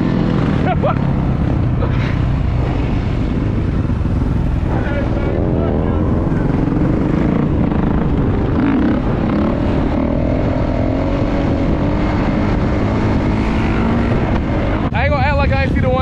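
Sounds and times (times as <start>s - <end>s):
dirt bike engine rumbling: 0.0s - 16.0s.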